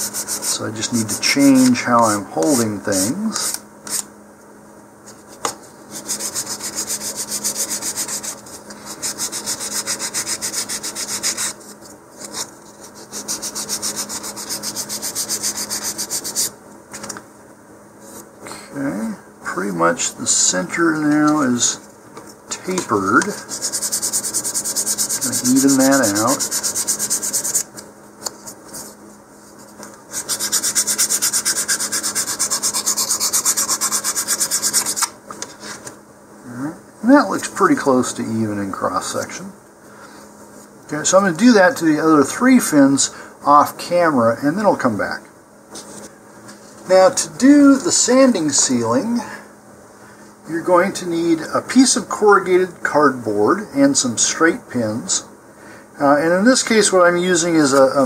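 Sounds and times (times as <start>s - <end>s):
sandpaper scratching strokes: 0.0s - 1.8s, 5.9s - 16.5s, 23.0s - 27.7s, 29.6s - 35.1s.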